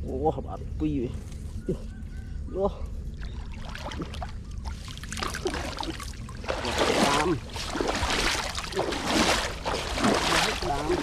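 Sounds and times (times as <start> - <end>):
muddy water splashing: 3.1 - 11.0.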